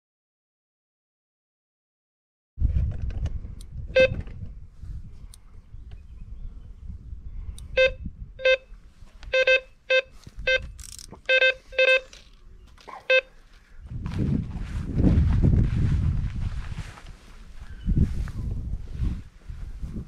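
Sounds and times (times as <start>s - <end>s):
electronic bite alarm beeping: 7.7s - 8.7s, 9.3s - 12.2s, 13.1s - 13.3s.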